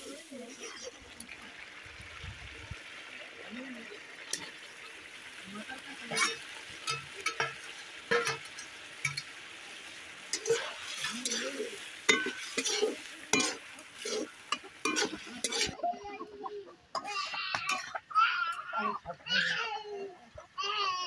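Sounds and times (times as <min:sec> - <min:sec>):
pan sizzling: 0:00.0 - 0:18.6
metal spatula scraping a pan: 0:06.0 - 0:09.4, 0:10.3 - 0:15.9, 0:17.0 - 0:18.0.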